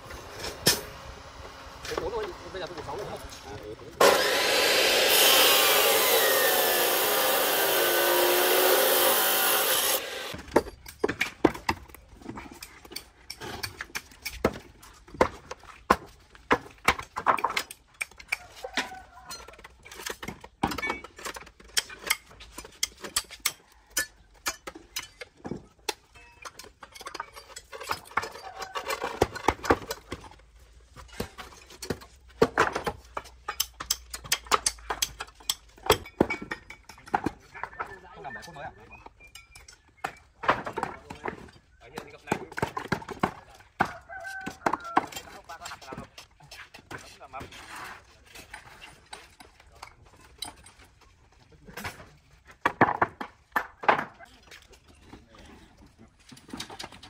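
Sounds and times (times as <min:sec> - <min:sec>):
cut-off saw grinding steel: 0:04.0 - 0:10.4.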